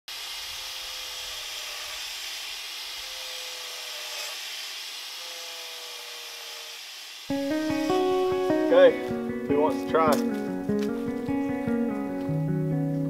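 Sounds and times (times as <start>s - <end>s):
angle grinder cutting wood: 0.1s - 10.4s.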